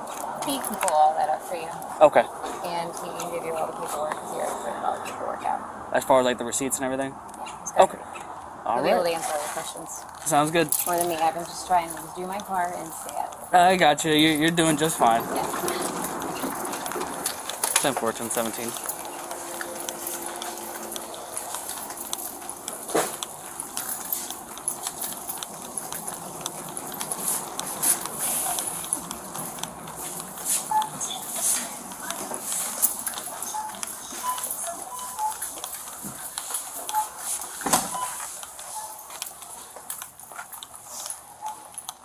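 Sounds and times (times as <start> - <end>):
footsteps on hard floor: 35.4 - 40.6.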